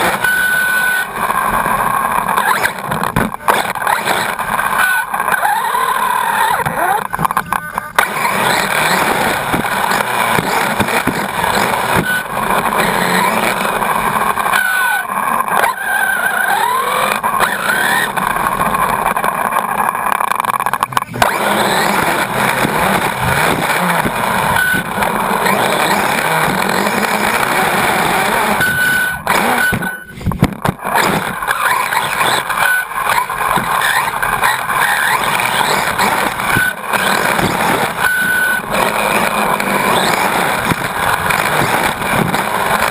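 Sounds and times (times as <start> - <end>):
drivetrain noise: 0.0 - 42.9
electric motor whine: 0.0 - 42.9
tyres on dirt: 0.0 - 42.9.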